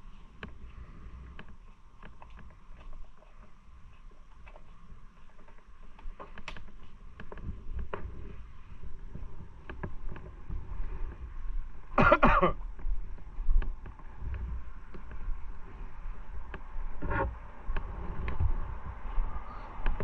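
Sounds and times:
wind noise: 0:04.7 - 0:20.0
cough or throat-clearing: 0:12.0 - 0:12.6.

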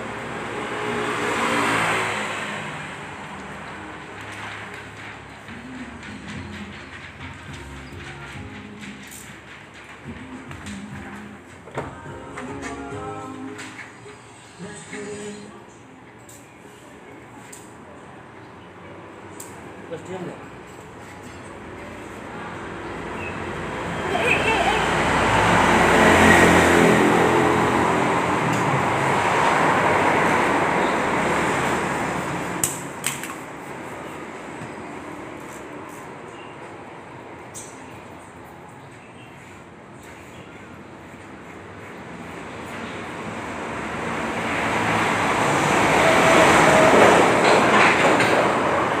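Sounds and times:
heavy vehicle passing: 0:00.0 - 0:07.0, 0:21.8 - 0:35.9, 0:42.0 - 0:49.0.

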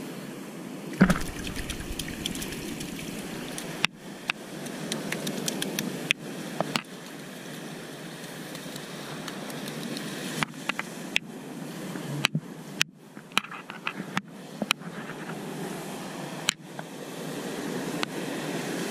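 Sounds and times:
sharp knocks and clicks: 0:01.0 - 0:04.0
sea surf washing over rocks: 0:01.0 - 0:10.4.

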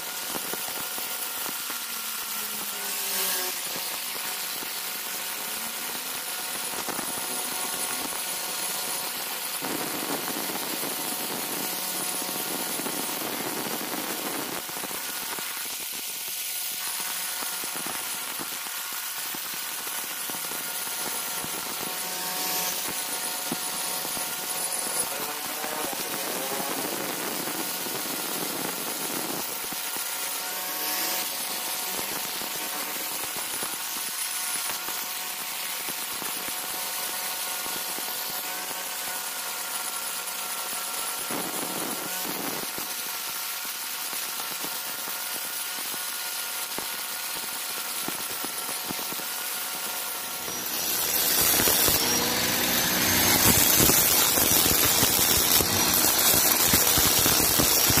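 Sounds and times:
angle grinder cutting stone: 0:00.0 - 0:58.0.

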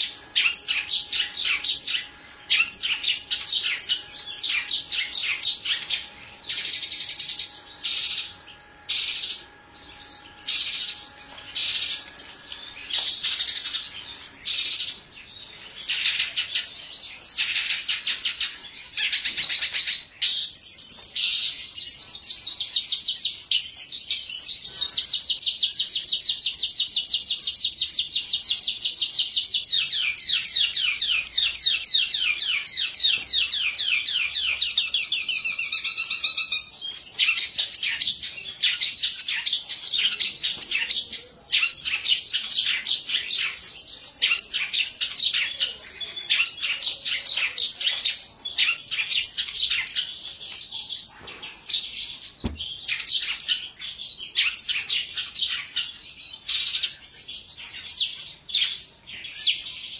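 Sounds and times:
lark singing: 0:00.0 - 0:43.6.

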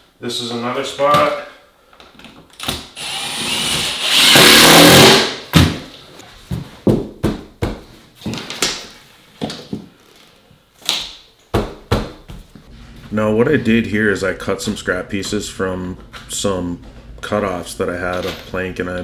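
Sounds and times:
cordless drill driving a screw: 0:03.0 - 0:05.2.

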